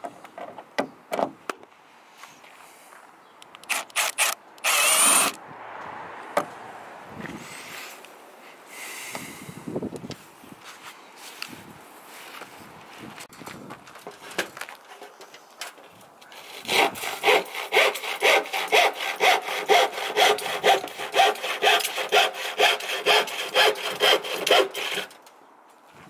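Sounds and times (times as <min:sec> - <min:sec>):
handsaw cutting plywood: 0:16.4 - 0:25.1.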